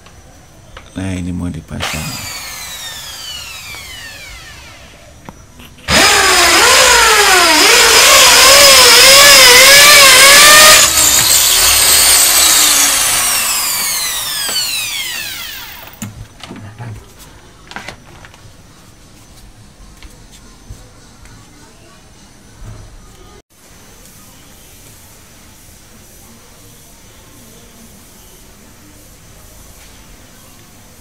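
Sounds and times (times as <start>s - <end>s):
electric drill boring into a wall: 1.8s - 5.0s, 5.9s - 16.0s.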